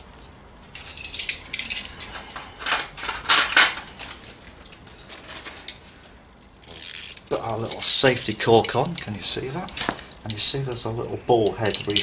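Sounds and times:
metal tools clinking: 0.7s - 4.2s, 11.4s - 12.0s.

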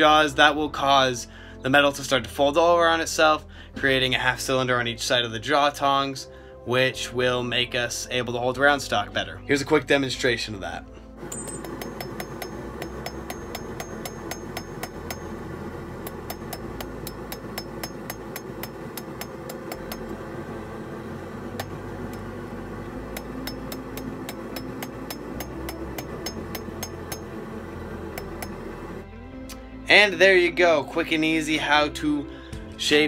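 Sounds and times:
hammer striking metal on anvil: 11.2s - 15.4s, 16.0s - 20.1s, 21.6s - 21.8s, 23.1s - 27.4s, 28.1s - 28.7s.

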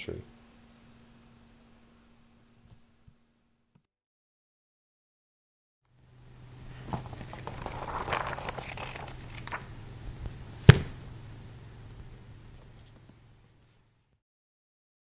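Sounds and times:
steady low hum: 0.0s - 3.6s, 5.9s - 14.2s
noisy rustle with clicks: 6.7s - 10.4s.

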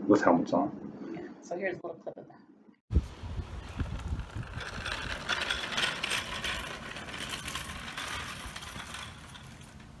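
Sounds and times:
cart wheels rattling on asphalt: 3.3s - 10.0s.

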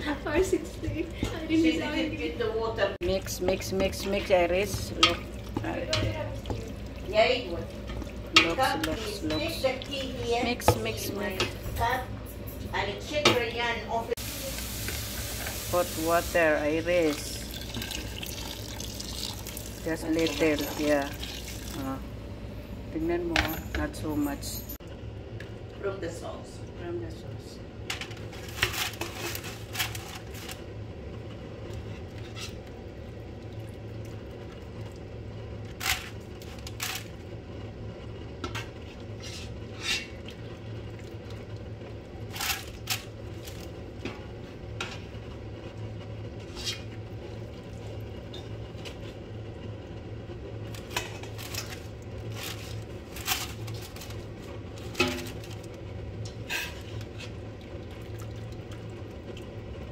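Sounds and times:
steady low hum: 0.0s - 59.9s
metal ladle clinking on pots: 7.8s - 9.8s.

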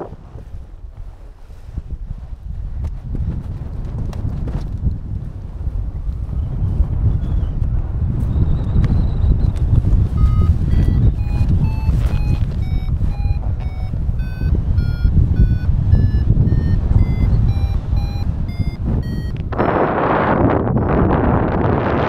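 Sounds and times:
wind rumble on microphone: 0.0s - 22.0s
variometer beeps: 9.3s - 21.7s.

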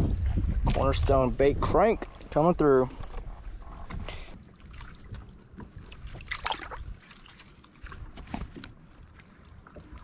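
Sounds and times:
low wind rumble: 0.0s - 7.2s
water lapping against hull: 0.0s - 10.0s.

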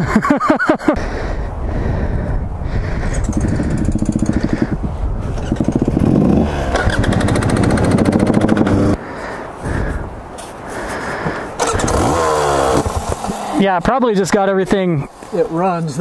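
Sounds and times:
dirt bike engine revving: 3.2s - 9.0s, 11.6s - 14.1s.

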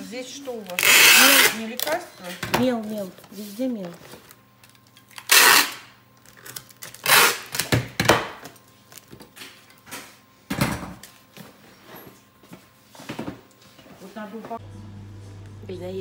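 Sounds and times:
packing tape ripping: 0.6s - 2.0s, 4.7s - 7.8s.

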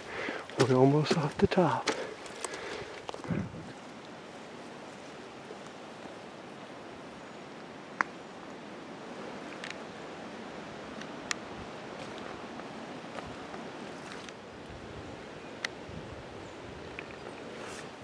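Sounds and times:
footsteps on dirt trail: 0.0s - 6.2s, 11.9s - 14.4s
rushing outdoor noise in woodland: 0.0s - 18.0s
wind on microphone: 3.2s - 3.9s, 14.6s - 17.0s.

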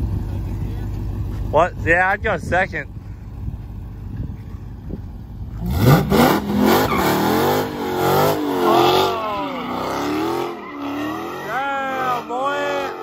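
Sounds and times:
car engine revving: 4.6s - 13.0s.

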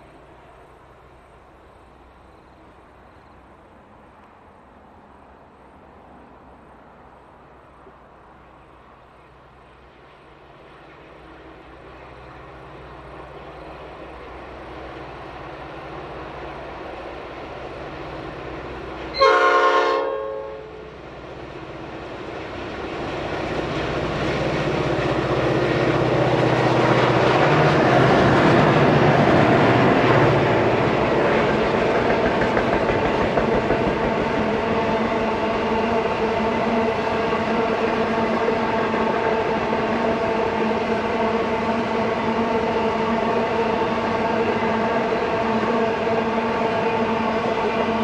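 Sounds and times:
diesel locomotive engines rumbling: 0.0s - 48.0s
locomotive horn blast: 19.1s - 20.9s
wheels clicking over rail joints: 31.0s - 34.8s.

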